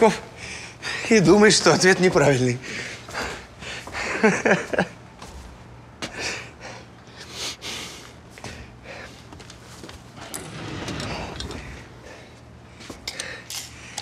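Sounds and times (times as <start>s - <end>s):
man snorting quietly through nose: 7.2s - 8.2s.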